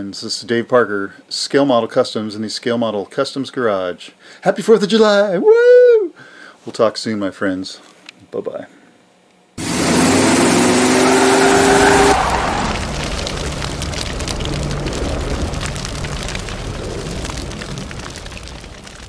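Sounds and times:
car engine running: 9.6s - 12.2s
tires screeching: 9.6s - 17.9s.

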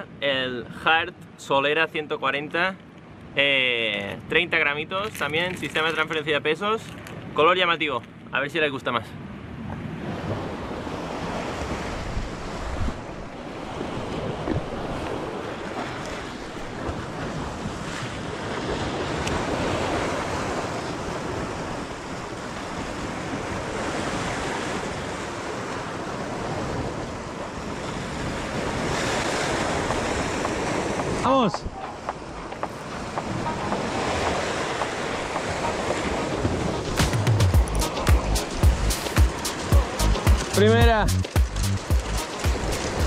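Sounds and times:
wind buffeting microphone: 9.4s - 43.0s
surf breaking on rocky shore: 10.0s - 43.0s.

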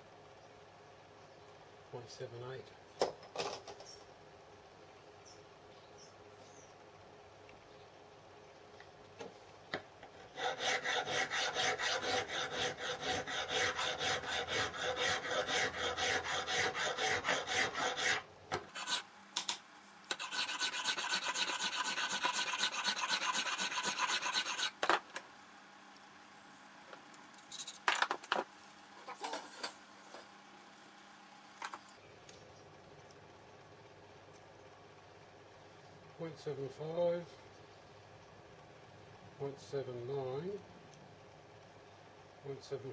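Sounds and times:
file rasping on metal: 10.2s - 19.1s, 20.1s - 24.8s.

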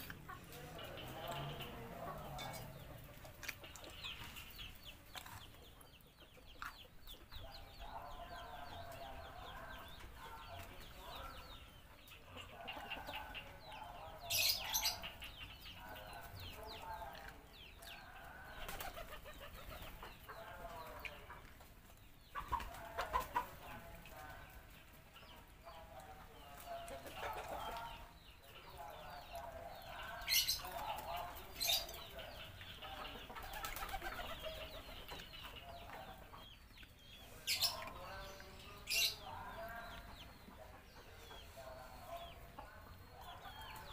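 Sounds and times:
chickens clucking: 0.0s - 43.9s.

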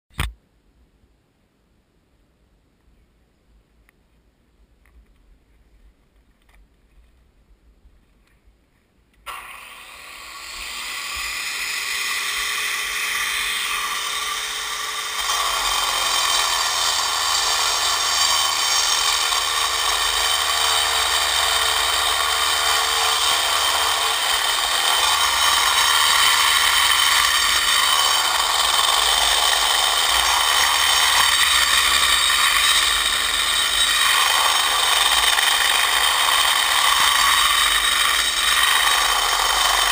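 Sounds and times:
angle grinder grinding stone: 9.3s - 39.9s.

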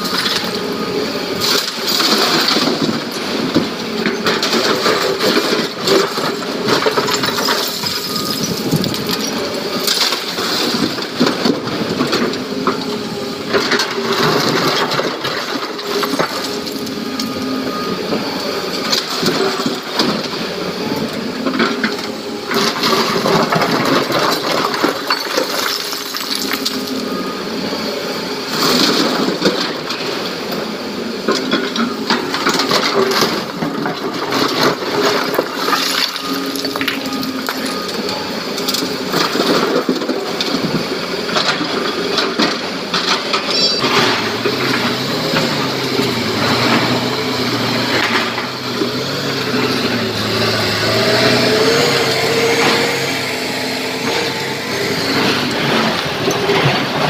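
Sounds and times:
excavator diesel engine running: 0.0s - 57.0s
heavy diesel truck engine: 0.0s - 57.0s
rocks clattering into steel tipper: 4.4s - 11.0s, 22.7s - 26.9s, 32.4s - 37.8s.

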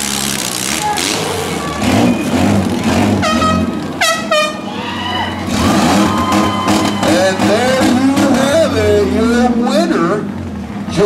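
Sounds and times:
truck engines rumbling: 0.0s - 11.0s
air horn blasting: 3.2s - 4.7s.

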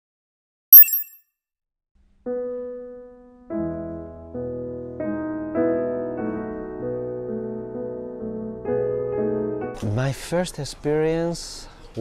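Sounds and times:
bright high-pitched chime: 0.8s - 1.2s.

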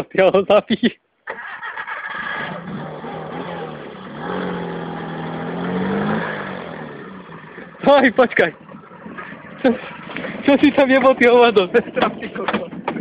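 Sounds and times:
car engine revving: 1.9s - 11.2s.

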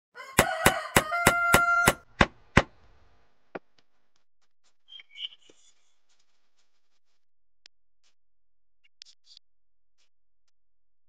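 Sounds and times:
sharp percussive knocks: 0.4s - 2.7s.

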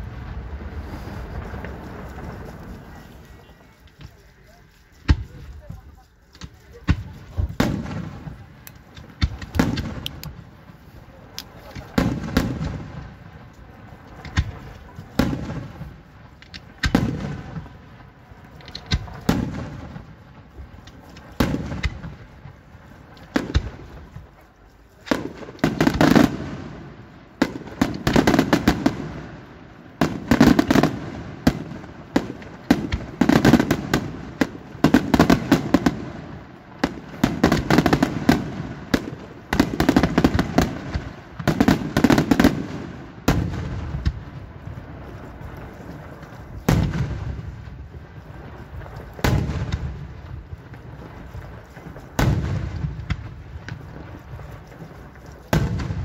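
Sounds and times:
rapid crackling reports: 0.0s - 19.2s
firework shells bursting: 0.4s - 17.5s.

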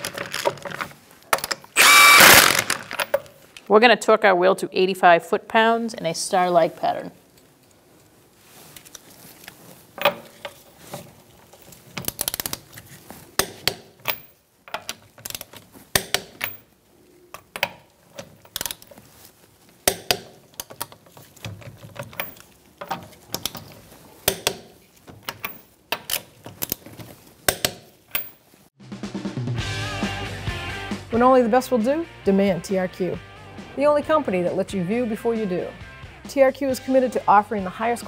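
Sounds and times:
torque wrench ratchet clicks: 1.8s - 2.8s.

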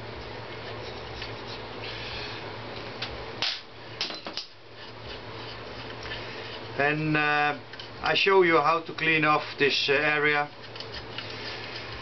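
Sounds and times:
steady low hum: 0.0s - 12.0s
metal scrape: 10.6s - 12.0s.

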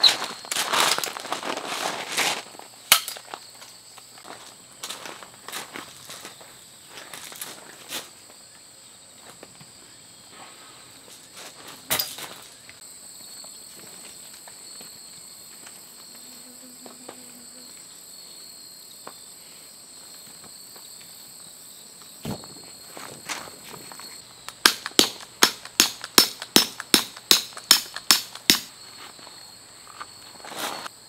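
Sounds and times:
high insect calls: 0.0s - 31.0s
tent peg hammered into gravel: 2.9s - 3.3s, 24.4s - 28.7s.

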